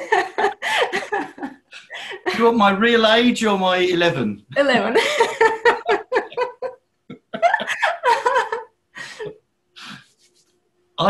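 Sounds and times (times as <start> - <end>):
people laughing: 0.0 - 2.6, 4.6 - 9.3
person speaking: 0.0 - 10.4.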